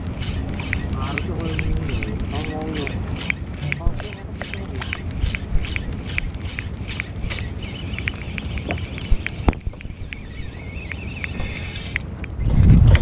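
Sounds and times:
boat engine low rumble: 0.0s - 13.0s
light ticks: 2.8s - 12.4s
faint high wavering chirps: 6.9s - 12.0s.

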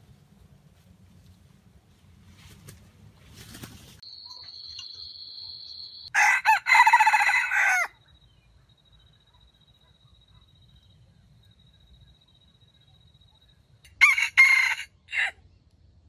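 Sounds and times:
rooster crowing: 6.1s - 8.0s, 13.9s - 15.4s.

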